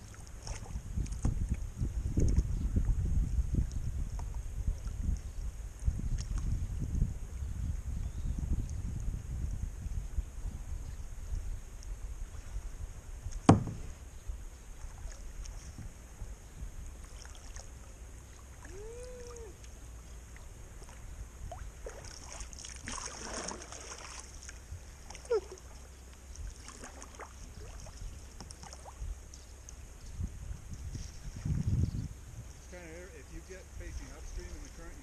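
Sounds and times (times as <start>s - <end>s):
low steady rumble: 0.0s - 35.0s
sharp knock: 13.5s - 13.9s
splashy rush of water: 21.8s - 24.4s.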